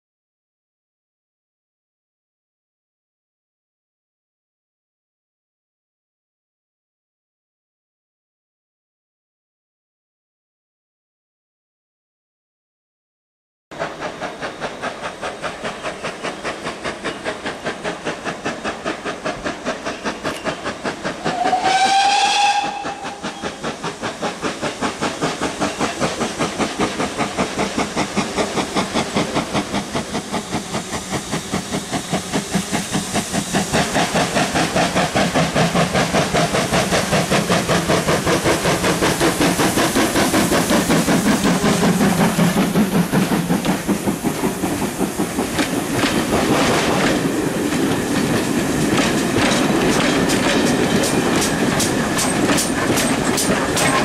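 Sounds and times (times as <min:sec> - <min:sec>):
steam locomotive exhaust beats: 0:13.8 - 0:54.0
steam whistle blast: 0:21.3 - 0:23.6.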